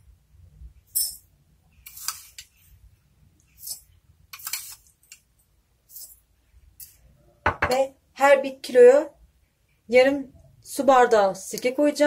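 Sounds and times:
spoon scooping coarse salt: 1.0s - 2.8s, 3.4s - 7.0s.

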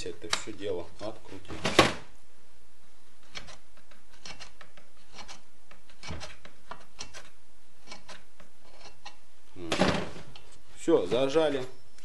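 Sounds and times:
screwdriver scraping: 3.2s - 9.2s.

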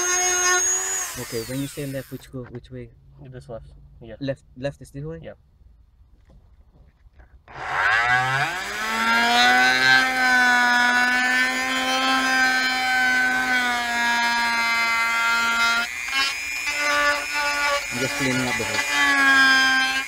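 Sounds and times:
rotary tool whining: 0.0s - 2.3s, 7.4s - 20.0s.

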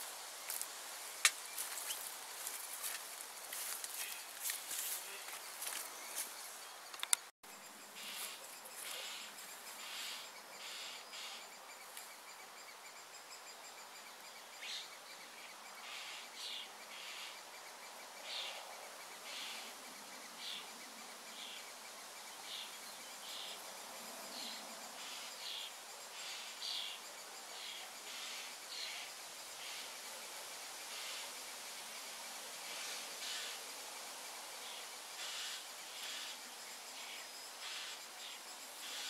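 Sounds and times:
small birds chirping: 0.0s - 18.6s
insect trill: 0.0s - 39.0s.

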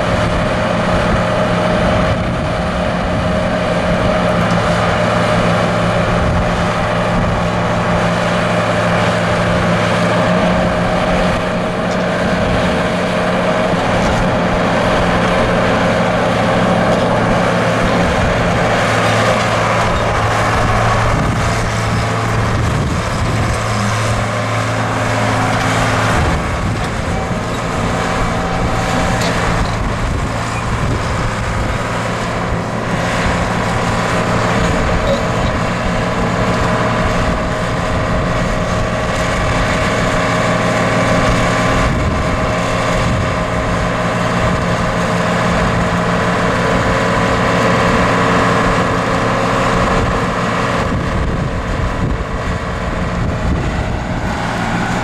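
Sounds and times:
diesel excavator engine running: 0.0s - 55.0s
high steady tone: 34.9s - 35.8s.

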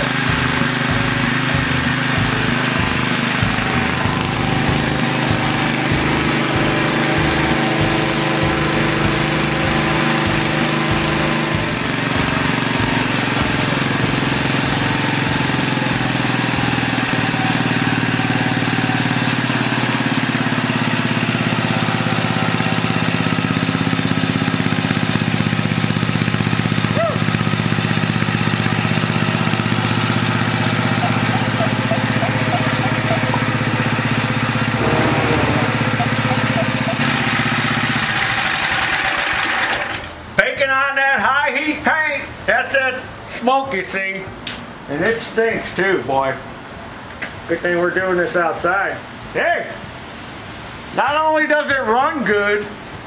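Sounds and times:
single-cylinder engine running: 0.0s - 40.2s.

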